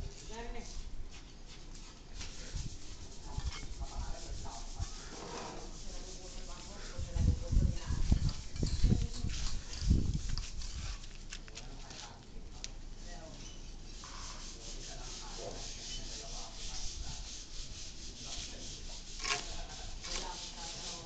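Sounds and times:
stone plaque scraping on wet mortar: 13.9 - 21.0.

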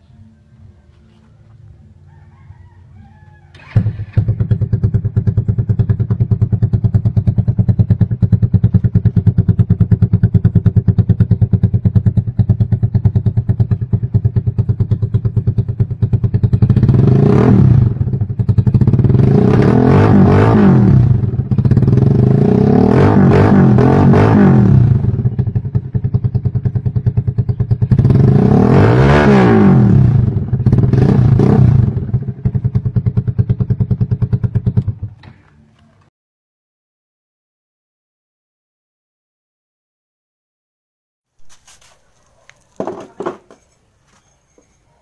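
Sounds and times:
motorcycle engine revving: 3.5 - 35.5
motorcycle engine starting: 3.5 - 36.0
motorcycle engine idling: 3.6 - 19.6, 24.7 - 28.5, 30.0 - 36.0.

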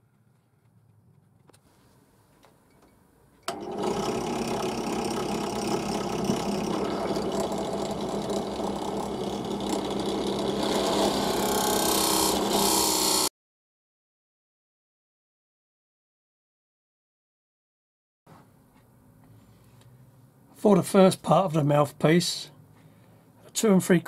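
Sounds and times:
drill press boring wood: 3.5 - 13.3.

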